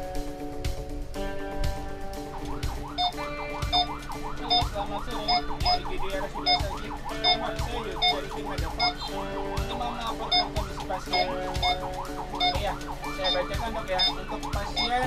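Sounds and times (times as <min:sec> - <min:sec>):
ambulance siren yelping: 0:02.1 - 0:15.0
short high beeps: 0:03.0 - 0:03.9, 0:04.5 - 0:08.2, 0:08.8 - 0:09.1, 0:10.3 - 0:11.8, 0:13.2 - 0:15.0.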